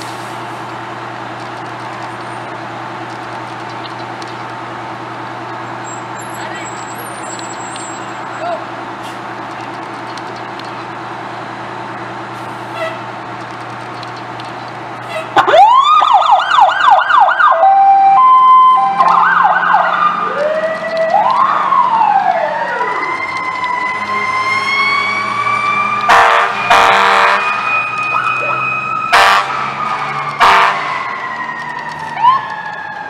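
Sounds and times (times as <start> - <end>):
fire engine sirens: 0.0 - 13.4, 14.2 - 33.0
diesel engine rumble: 0.0 - 17.6
air horn blasts: 26.1 - 27.6, 29.1 - 29.6, 30.4 - 31.0.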